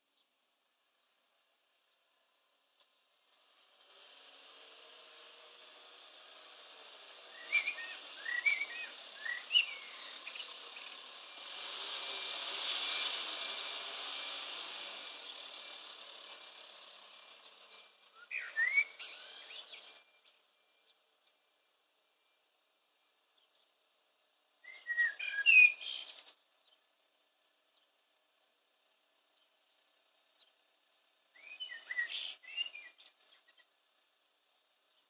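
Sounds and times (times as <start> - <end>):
blackbird singing: 7.3 - 11.1, 17.7 - 21.1, 24.6 - 26.9, 31.3 - 33.8.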